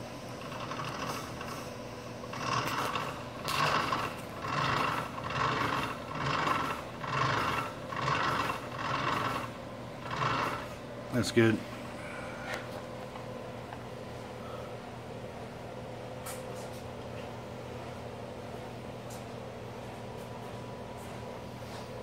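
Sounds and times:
brake rotor spinning with rubbing whir: 0.0 - 10.9.

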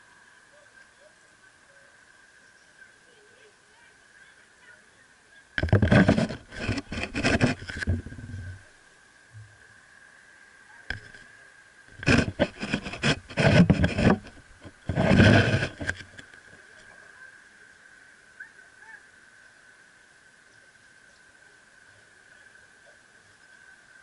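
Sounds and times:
rubbing and scraping knocks: 5.6 - 8.6, 11.9 - 16.3.

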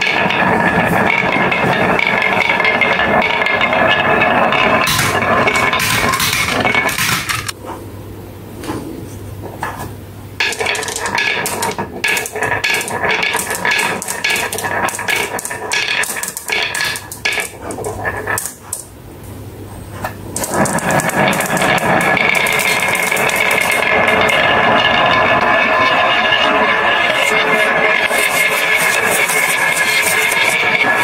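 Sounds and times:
marbles rolling on wooden track: 0.0 - 7.6, 10.4 - 18.9, 20.0 - 31.0
marbles knocking together: 10.4 - 18.9, 20.4 - 31.0.

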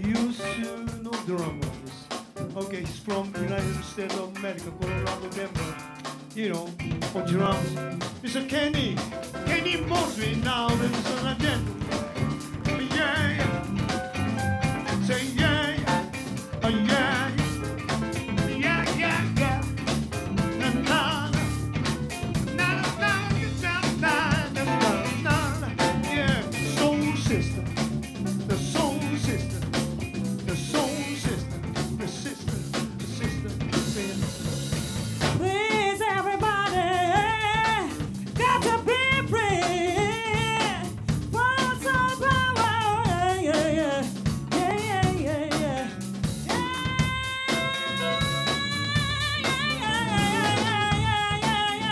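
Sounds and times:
drum kit: 0.0 - 51.9
funk band playing: 0.0 - 51.9
woman singing: 15.0 - 17.5, 35.4 - 51.9.

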